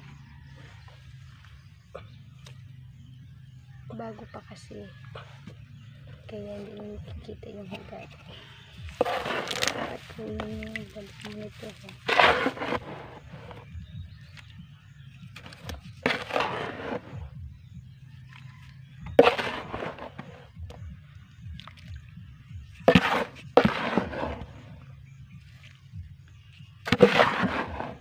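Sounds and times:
hands scraping and rustling soil: 6.3 - 17.4, 18.3 - 20.8, 22.7 - 28.0.

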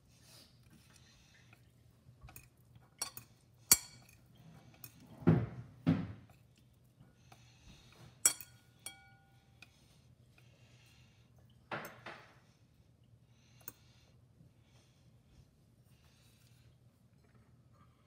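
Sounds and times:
fork clinking against ceramic bowl: 2.3 - 4.2, 8.2 - 9.7.

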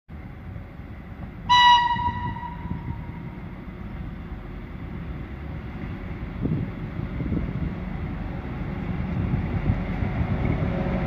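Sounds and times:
train rumble: 0.1 - 11.0
locomotive horn blast: 1.5 - 3.4.

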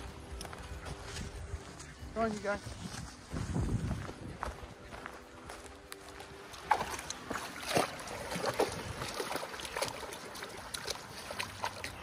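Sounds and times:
dog splashing through mud: 6.5 - 12.0.

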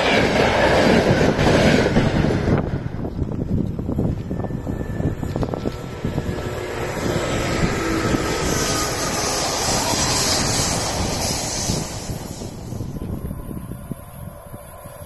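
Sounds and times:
passing vehicle rushing: 3.8 - 13.4.

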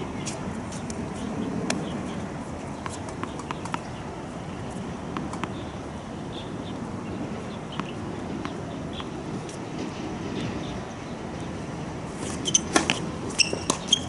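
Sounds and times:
steady background noise: 0.0 - 14.0
tennis balls bouncing on hard court: 2.8 - 4.0, 5.1 - 5.8, 7.7 - 10.6, 12.2 - 14.0.

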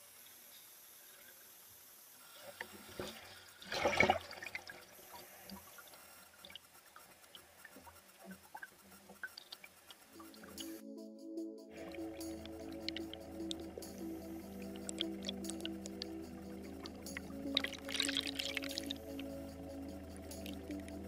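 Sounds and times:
water splashing and gurgling: 2.7 - 5.7, 11.8 - 21.0
bubbles popping and clicking: 17.0 - 19.3.

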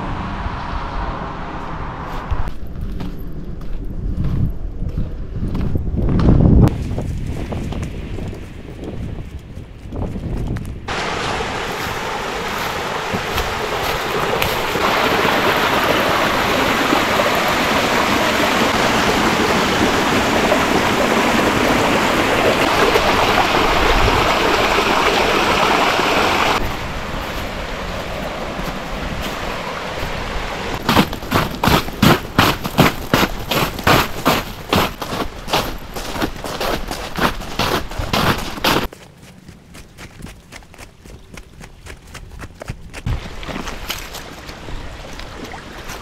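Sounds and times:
rushing water: 10.9 - 38.9, 43.1 - 46.0.

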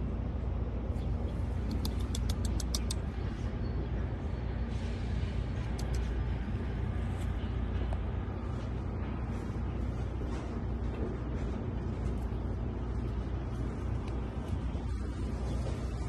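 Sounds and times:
low outdoor background rumble: 0.0 - 16.0
short high ticks: 1.6 - 3.1.

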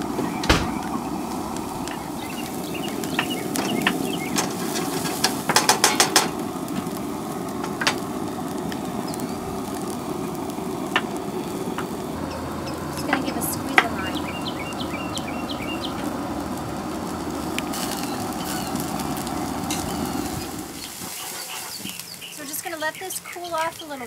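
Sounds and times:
greens sizzling in a pan: 0.0 - 24.0.

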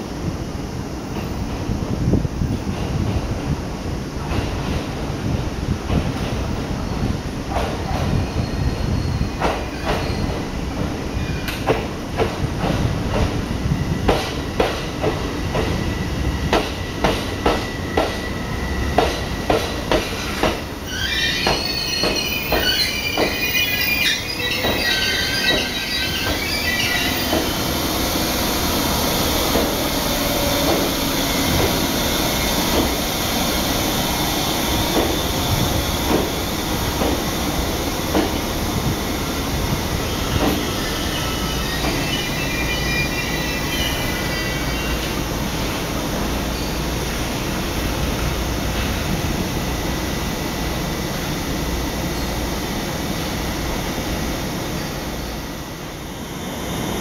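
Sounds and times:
moving train rumble: 0.0 - 57.0
train wheels squealing: 6.8 - 11.8, 15.7 - 28.2, 40.0 - 45.2, 46.5 - 46.9, 54.8 - 55.6
train wheels clacking over rail joints: 9.4 - 13.4, 14.0 - 15.8, 16.5 - 18.2, 18.9 - 20.7, 21.4 - 23.6, 24.5 - 26.5, 27.1 - 27.6, 29.5 - 29.8, 30.6 - 31.8, 32.6 - 33.0, 34.9 - 35.2, 36.0 - 37.3, 38.1 - 38.9, 40.3 - 40.8, 41.8 - 42.1.

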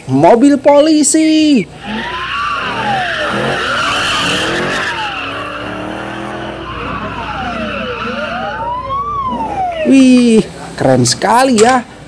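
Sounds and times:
police siren wailing: 1.8 - 10.4.

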